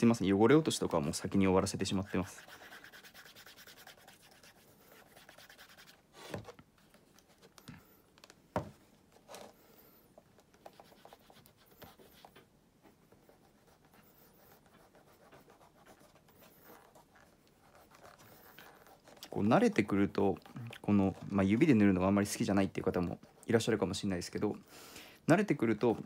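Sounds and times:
shoe knocking: 8.5s - 8.8s.

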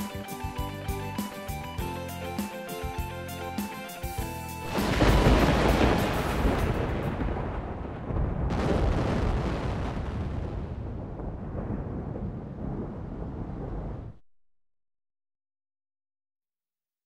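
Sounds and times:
deep rumbling boom: 4.7s - 14.2s.

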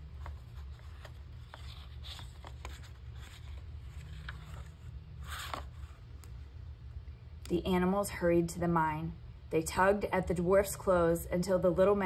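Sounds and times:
paper pages rustling and turning: 0.0s - 6.4s
steady low hum: 0.0s - 12.0s.

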